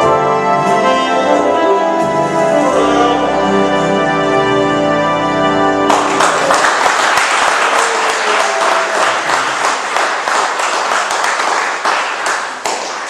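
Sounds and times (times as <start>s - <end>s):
keyboard chord: 0.0s - 6.5s
audience applauding: 5.9s - 13.0s.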